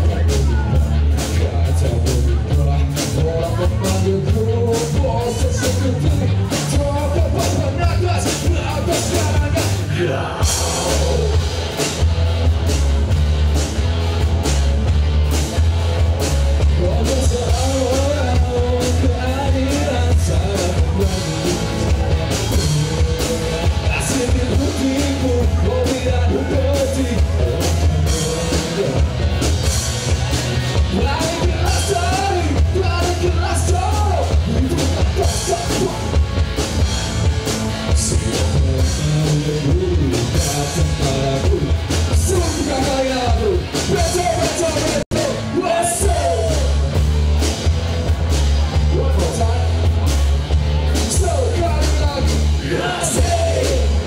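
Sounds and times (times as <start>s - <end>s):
man singing: 0.0s - 11.8s, 16.6s - 29.4s, 30.8s - 36.2s, 37.8s - 46.9s, 51.0s - 54.0s
live rock band: 0.0s - 54.0s.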